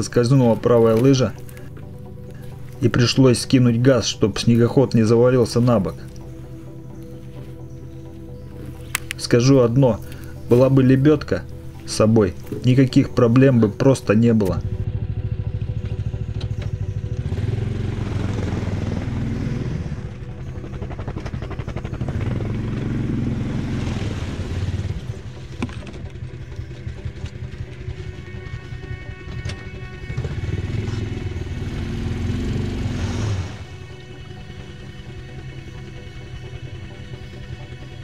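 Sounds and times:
snowmobile engine revving: 14.6s - 25.4s, 27.8s - 35.4s.

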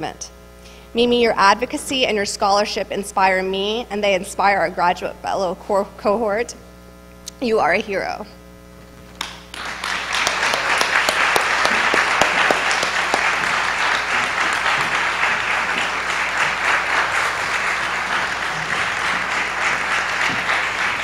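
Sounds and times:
audience applauding: 9.2s - 21.0s.

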